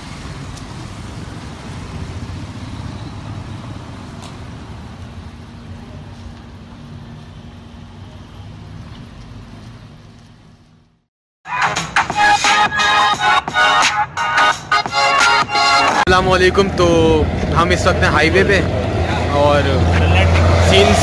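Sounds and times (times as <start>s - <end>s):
low rumble of street traffic: 0.0s - 11.1s, 12.7s - 21.0s
motorcycle riding past: 16.2s - 21.0s.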